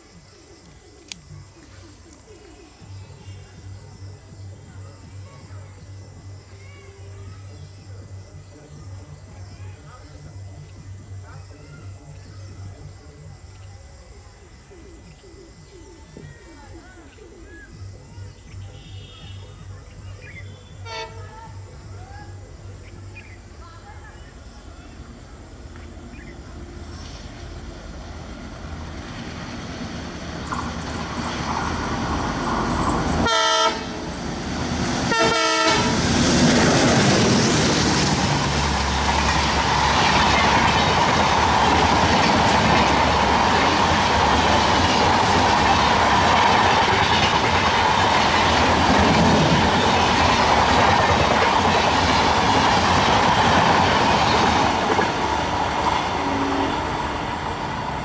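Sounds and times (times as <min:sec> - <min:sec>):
diesel locomotive approaching: 0:00.0 - 0:58.0
train horn blasts: 0:20.7 - 0:21.2, 0:33.2 - 0:34.0, 0:35.1 - 0:36.1, 0:56.2 - 0:57.3
train wheels clattering past: 0:26.8 - 0:58.0.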